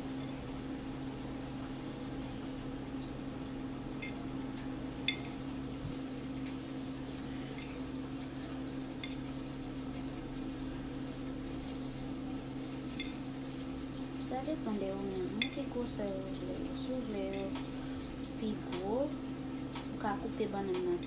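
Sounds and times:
steady low hum: 0.0 - 21.0
metal fork clicking on plates: 4.0 - 5.4, 12.9 - 13.2, 15.3 - 15.7, 17.3 - 17.8.

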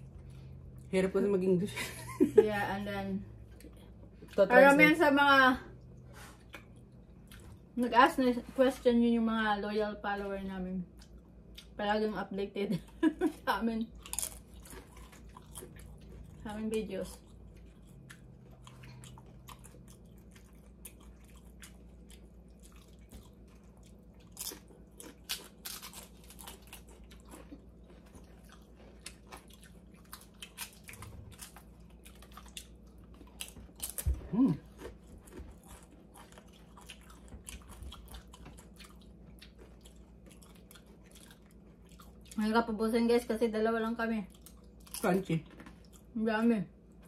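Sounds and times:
crunching tortilla chips: 17.1 - 42.4.

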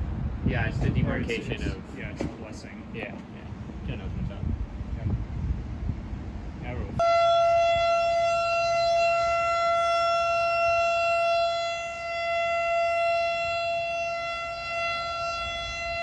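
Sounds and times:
steady siren tone: 7.0 - 16.0.

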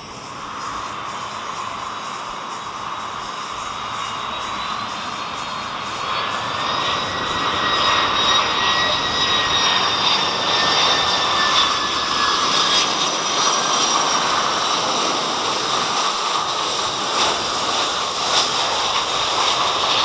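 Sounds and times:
jet engine high whine: 0.0 - 20.0
jet engines roaring: 0.0 - 20.0.

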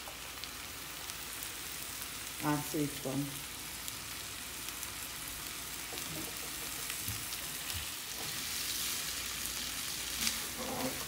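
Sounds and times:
food sizzling in a pan: 0.0 - 11.0
spatula stirring in pan: 5.8 - 11.0.

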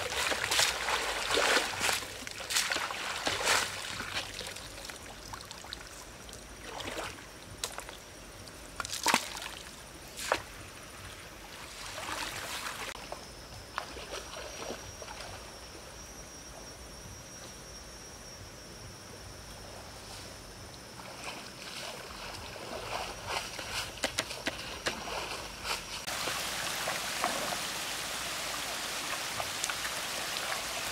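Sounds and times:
water splashing: 0.0 - 6.0, 24.9 - 30.9
flowing water: 0.0 - 7.2, 26.0 - 30.9
thin steady high tone: 13.0 - 23.4.

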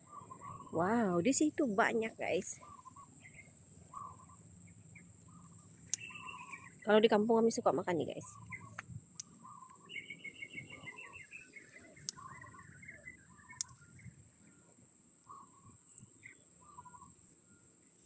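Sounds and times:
birds chirping: 0.0 - 18.0
sharp ticks: 5.5 - 6.7.

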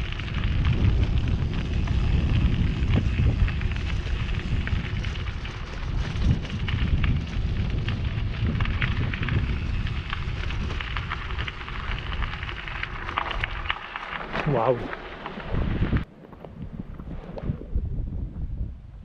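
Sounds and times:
bike tyres crunching on stones: 0.0 - 17.4
wind on microphone: 0.0 - 19.0.

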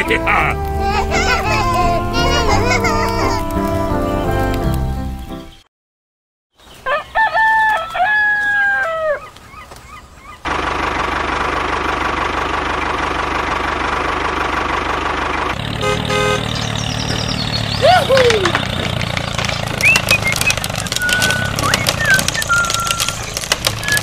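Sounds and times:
rooster crowing: 6.8 - 9.4.

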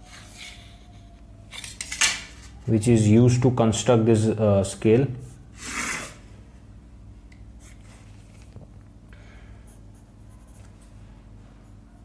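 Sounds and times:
low steady hum: 0.0 - 12.0
pencil scratching on paper: 9.7 - 11.0.

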